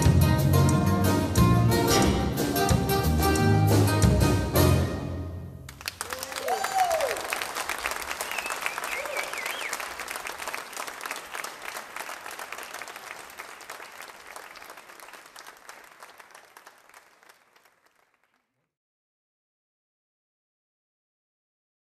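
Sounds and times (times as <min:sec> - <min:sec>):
audience applauding: 0:05.7 - 0:18.6.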